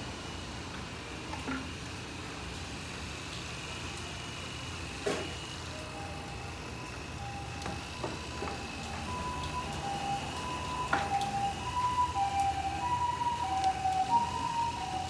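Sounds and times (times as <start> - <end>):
electric grooming clippers humming: 0.0 - 15.0
thin high whine: 5.0 - 15.0.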